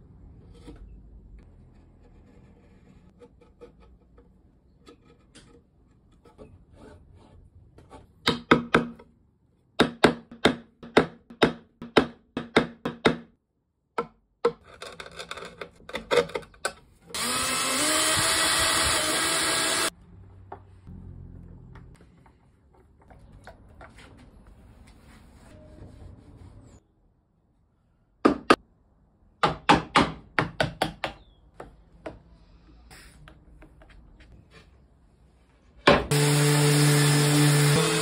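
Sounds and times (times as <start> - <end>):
chisel scraping wood: 0.3 - 8.2
power drill spinning up: 17.2 - 19.9.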